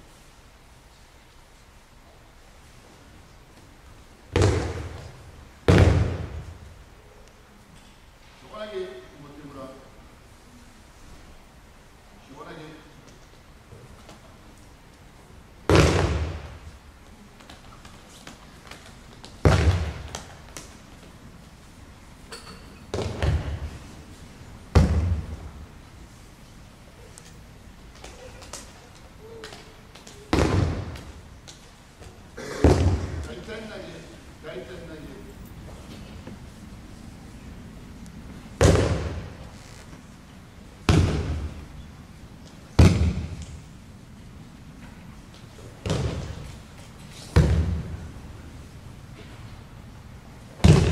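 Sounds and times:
body slapping on mats: 0:04.3 - 0:06.6, 0:15.7 - 0:16.6, 0:17.4 - 0:20.8, 0:24.7 - 0:25.4, 0:29.5 - 0:33.3, 0:38.6 - 0:39.4, 0:40.8 - 0:41.6, 0:42.8 - 0:43.6, 0:50.6 - 0:50.9.

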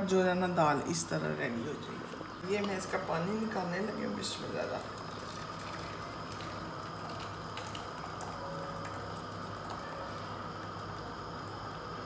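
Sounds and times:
water pouring into plastic bowl: 0:04.6 - 0:10.3.

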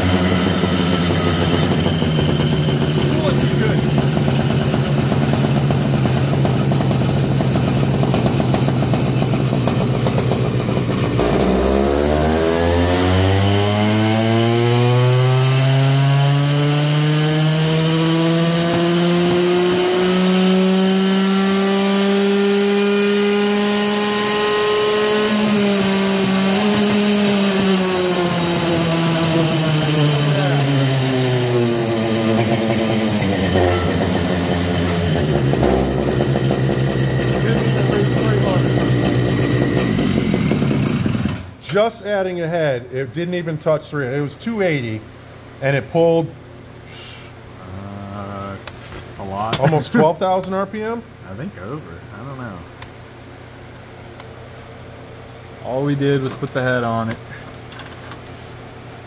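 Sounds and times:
two-stroke engine revving: 0:00.0 - 0:41.6.

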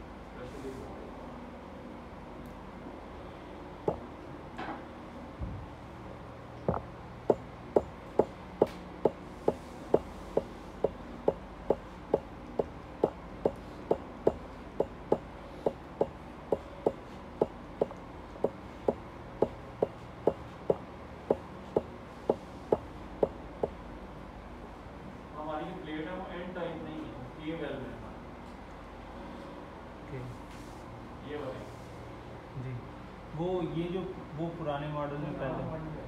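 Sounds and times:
low background hum: 0:00.0 - 0:36.0.

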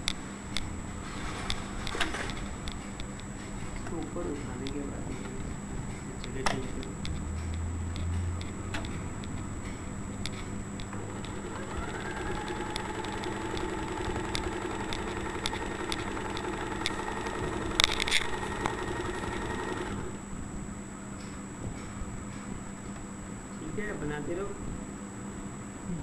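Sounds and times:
sewing machine clacks: 0:10.8 - 0:20.2
sewing machine motor whine: 0:10.8 - 0:20.3
sewing needle ticking: 0:10.9 - 0:20.2.

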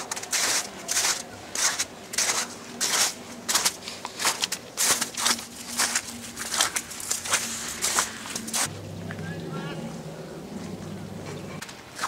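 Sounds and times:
footsteps crunching through snow: 0:00.0 - 0:08.7.

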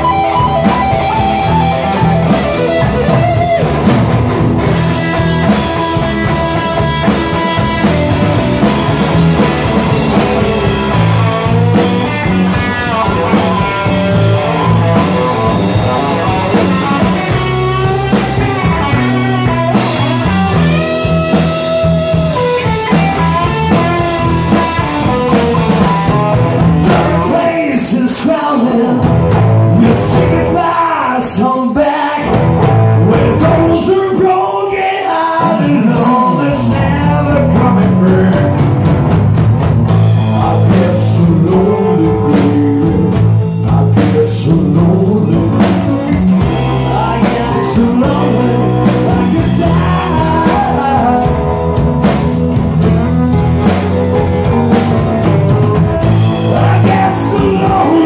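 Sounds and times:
rock and roll band playing: 0:00.0 - 0:58.0
man singing: 0:04.7 - 0:08.8, 0:25.6 - 0:38.9, 0:40.2 - 0:52.5, 0:54.4 - 0:58.0.

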